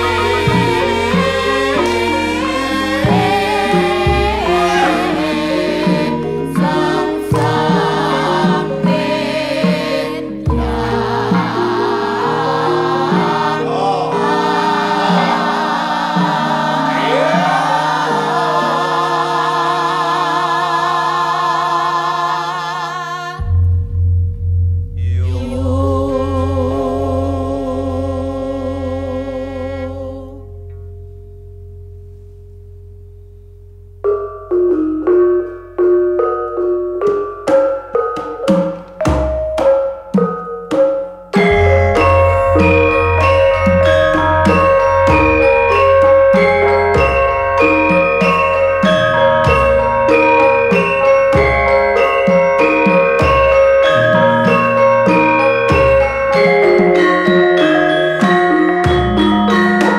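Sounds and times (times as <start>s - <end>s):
mallet-struck metallophones: 0.0s - 21.7s, 32.7s - 59.9s
chorus of singers: 0.0s - 23.6s, 25.0s - 30.5s, 41.5s - 59.9s
sustained bronze notes: 0.0s - 29.7s, 41.4s - 59.9s.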